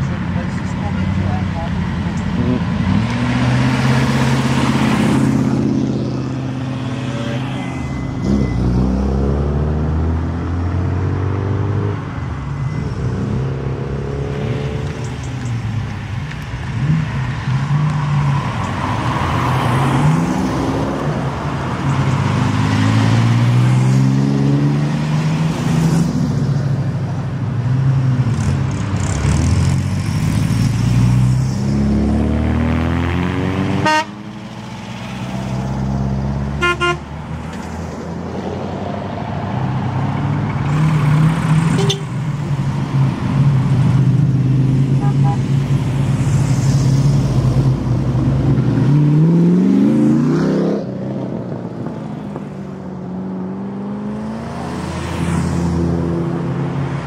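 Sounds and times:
cars accelerating past: 2.2s - 26.8s, 28.0s - 57.0s
car horn toots: 33.8s - 34.2s, 36.6s - 37.1s, 41.7s - 42.2s, 45.0s - 45.4s.

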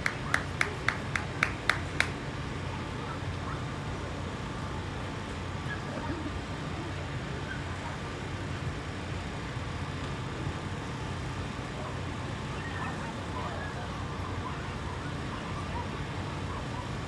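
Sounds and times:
constant low hum: 0.0s - 17.0s
even outdoor rumble: 0.0s - 17.0s.

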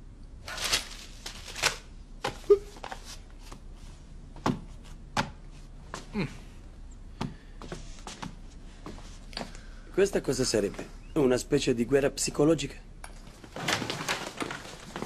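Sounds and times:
newspaper rustling: 0.4s - 3.6s.

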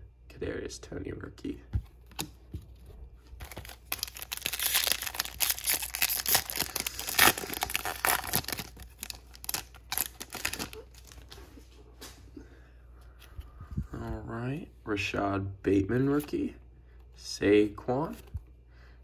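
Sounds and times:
foil wrapper crinkling: 3.4s - 11.4s
foil wrapper ripping: 3.4s - 11.4s.

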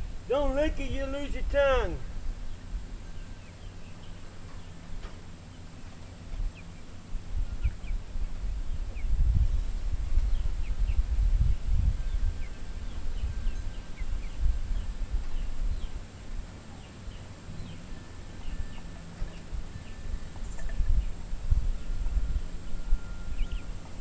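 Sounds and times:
low rumble on microphone: 6.3s - 16.0s, 19.4s - 23.7s.

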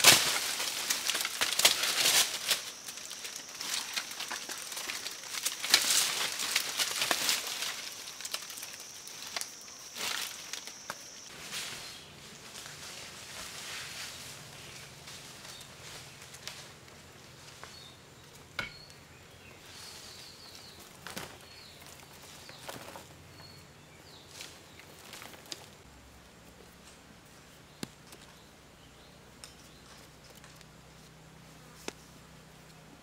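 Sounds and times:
dry vines snapping and clicking: 0.0s - 11.0s
rustling: 0.0s - 25.9s
footsteps on loose soil: 19.7s - 25.9s.

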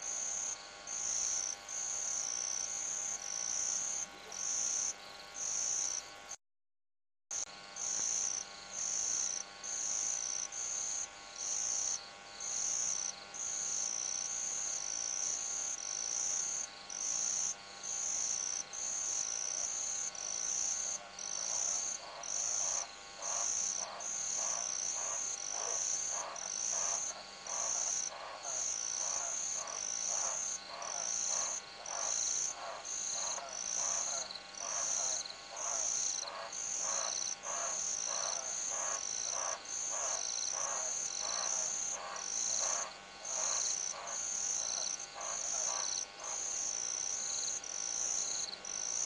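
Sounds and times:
night insects trilling: 0.0s - 6.1s, 7.4s - 49.0s
frogs calling: 15.2s - 49.0s.

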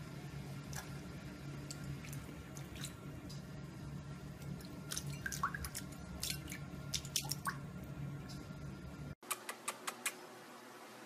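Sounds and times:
steady low hum: 0.0s - 11.0s
water splashing in a bowl: 1.6s - 3.5s, 4.4s - 7.7s.

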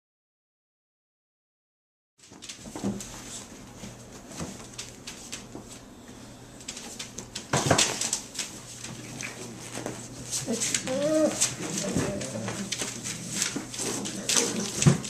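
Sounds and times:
puppies scuffling on blankets: 2.2s - 15.0s
puppy squeaks and grunts: 10.5s - 12.4s.

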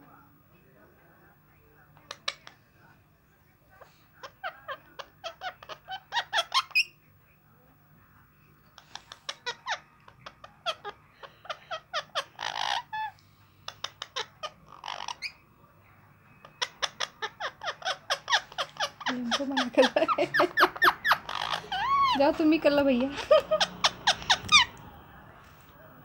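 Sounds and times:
parakeets chattering: 2.0s - 2.7s, 3.7s - 7.1s, 8.6s - 15.5s, 16.3s - 25.1s
raspy parakeet squawks: 4.2s - 7.0s, 8.8s - 13.1s, 13.7s - 15.4s, 16.4s - 22.4s, 23.5s - 24.8s.

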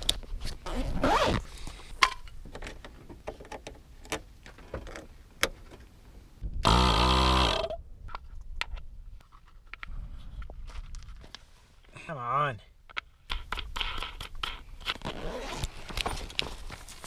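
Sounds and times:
zipper opening bag: 0.4s - 1.5s, 15.0s - 16.0s.

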